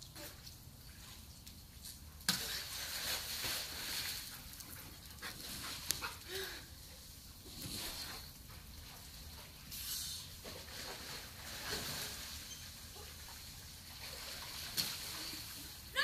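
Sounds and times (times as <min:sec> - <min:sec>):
splashing water: 0:00.0 - 0:06.5, 0:07.5 - 0:16.0
splash in swimming pool: 0:02.2 - 0:06.5, 0:07.6 - 0:16.0.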